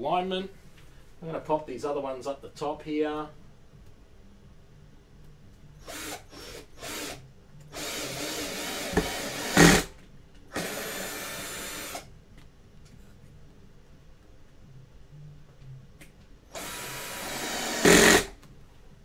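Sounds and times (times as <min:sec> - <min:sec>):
cordless drill driving screw: 0:05.8 - 0:09.9, 0:10.5 - 0:12.1, 0:16.6 - 0:18.3.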